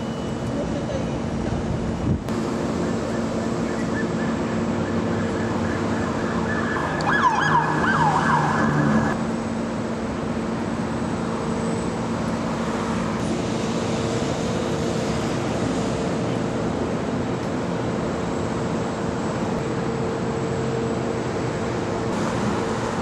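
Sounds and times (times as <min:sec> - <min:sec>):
idling engines and road traffic: 0:00.0 - 0:23.0
electronic siren yelps: 0:02.6 - 0:09.2.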